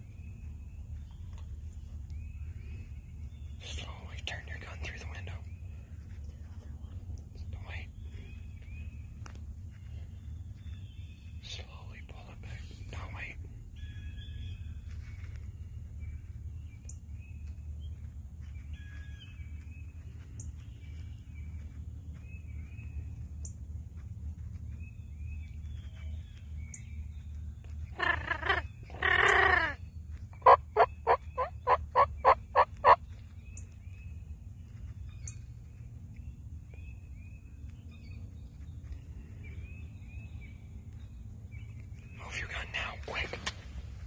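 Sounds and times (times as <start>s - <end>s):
songbirds chirping: 0.0s - 44.0s
turkey gobbling: 30.4s - 33.0s
turkey yelping: 30.4s - 33.0s.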